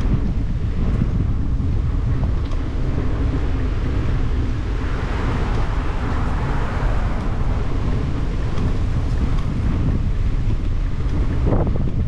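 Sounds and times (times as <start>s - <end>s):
wind rumbling on microphone: 0.0s - 12.0s
car passing: 2.6s - 11.4s.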